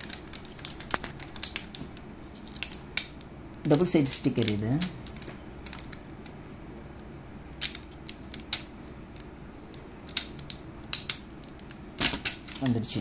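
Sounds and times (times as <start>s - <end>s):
tape peeling with crackles: 0.0s - 6.4s.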